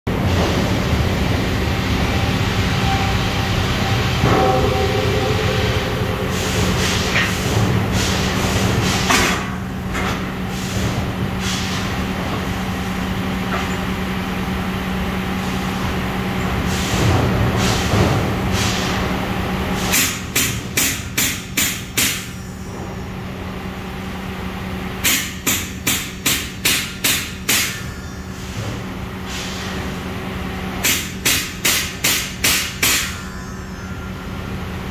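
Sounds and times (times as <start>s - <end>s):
steady low hum: 0.1s - 19.9s
hammer striking saw blade: 4.2s - 7.7s, 8.7s - 10.3s, 19.9s - 22.9s, 25.0s - 28.8s, 30.8s - 34.1s.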